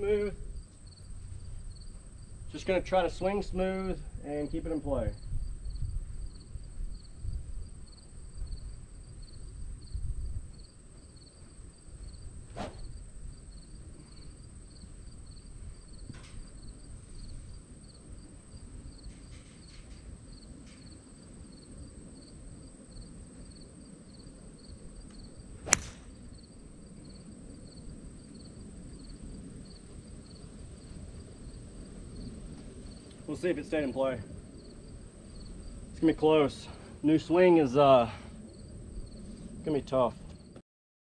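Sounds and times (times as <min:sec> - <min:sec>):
crickets chirping: 0:00.0 - 0:39.7
continuous high buzz: 0:00.0 - 0:40.5
golf club striking ball: 0:25.6 - 0:26.3.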